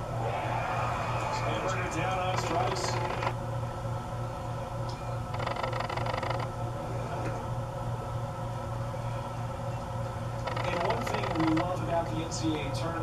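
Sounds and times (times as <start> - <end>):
ballpark crowd noise: 0.0 - 4.8
steady low hum: 0.0 - 13.0.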